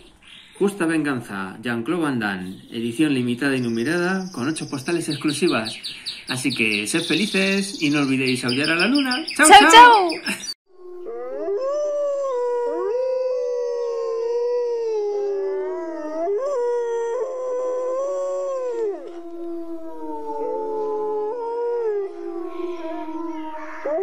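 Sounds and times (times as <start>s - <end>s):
wolves howling: 10.8s - 24.0s.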